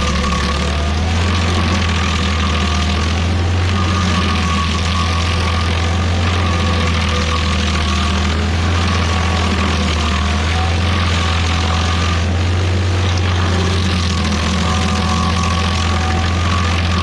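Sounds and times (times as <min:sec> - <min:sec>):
cutter wheel chipping wood: 0:00.0 - 0:17.0
stump grinder engine hum: 0:00.0 - 0:17.0.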